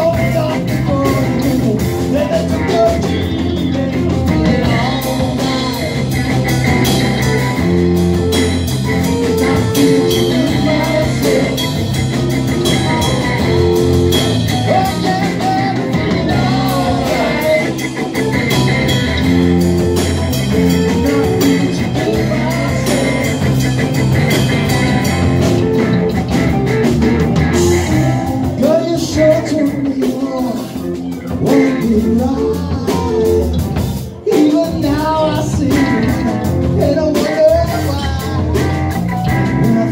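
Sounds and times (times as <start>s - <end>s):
lead vocal singing: 0.0s - 24.0s, 27.5s - 39.9s
bass guitar: 0.0s - 39.9s
drum kit: 0.0s - 39.9s
electric guitars: 0.0s - 39.9s.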